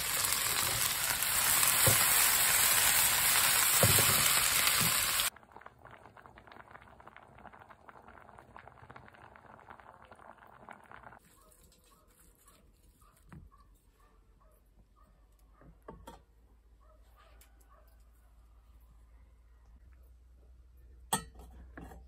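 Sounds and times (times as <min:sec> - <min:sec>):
peppers sizzling in oil: 0:00.0 - 0:05.4
oil bubbling with small pops: 0:05.3 - 0:11.4.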